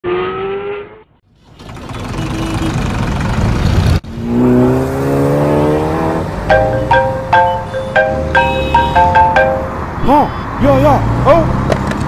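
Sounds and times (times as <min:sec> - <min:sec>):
car engine accelerating: 0:02.9 - 0:09.9.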